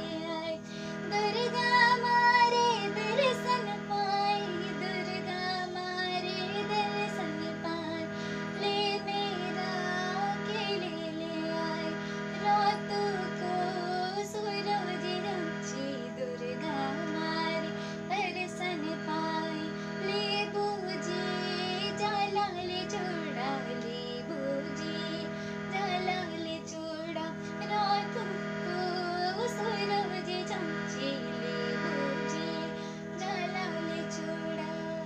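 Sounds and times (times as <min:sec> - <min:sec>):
held backing tones: 0:00.0 - 0:35.0
woman singing folk song: 0:00.0 - 0:35.0.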